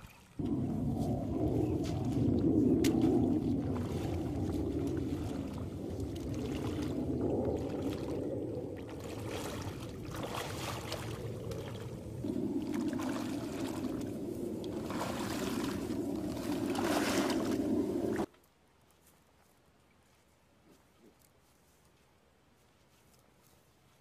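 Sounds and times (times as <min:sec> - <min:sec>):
boots sloshing through water: 0:00.0 - 0:18.3
steady low rushing: 0:00.4 - 0:18.3.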